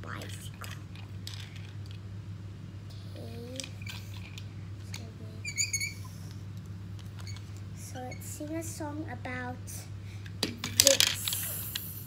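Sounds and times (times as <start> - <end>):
high squeak: 5.4 - 6.1.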